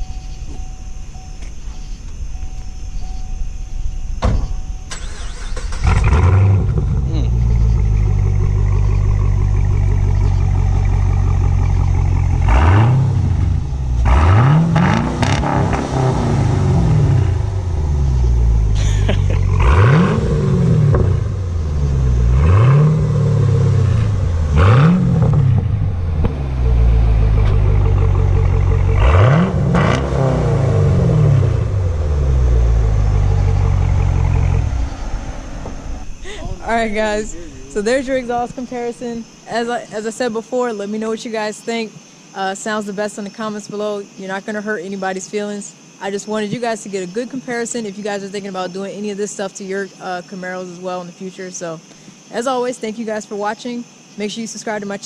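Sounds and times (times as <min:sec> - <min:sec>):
car engine idling and revving: 0:00.0 - 0:39.4.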